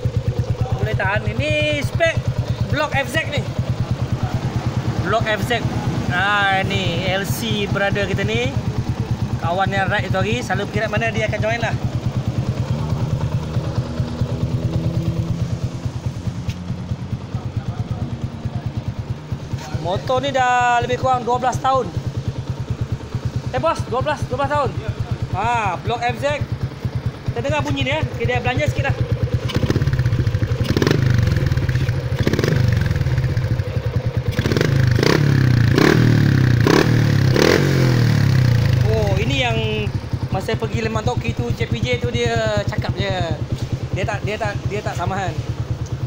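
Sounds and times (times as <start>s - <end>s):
motorcycle engine idling: 0.0s - 46.0s.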